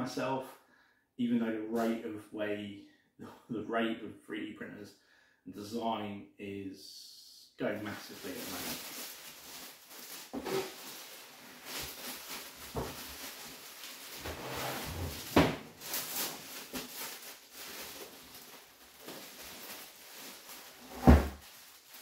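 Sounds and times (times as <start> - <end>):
plastic wrap rustling: 7.8 - 22.0.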